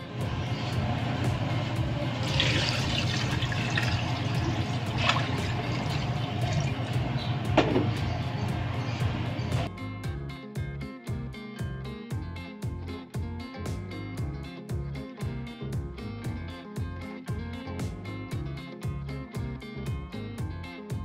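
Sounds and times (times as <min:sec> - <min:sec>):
water pouring into metal pot: 0:00.5 - 0:07.2.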